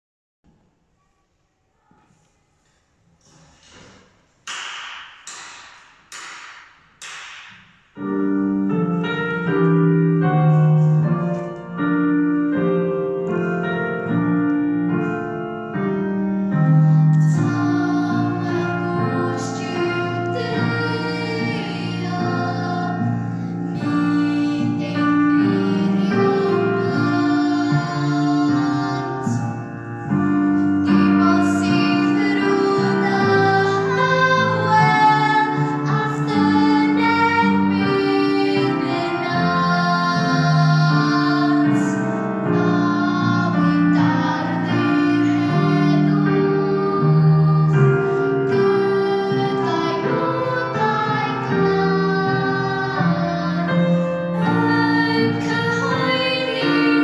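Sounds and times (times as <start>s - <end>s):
piano accompaniment: 4.5s - 57.0s
voices singing: 17.0s - 29.7s, 30.6s - 57.0s.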